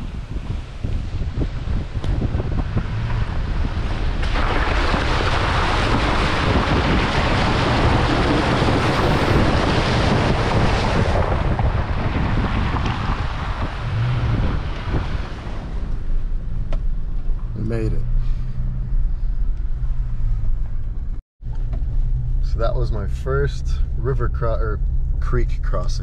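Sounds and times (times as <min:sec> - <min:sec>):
wind on microphone: 0:00.0 - 0:17.0
truck engine rumble: 0:00.0 - 0:26.0
tyres splashing through water: 0:01.0 - 0:16.1.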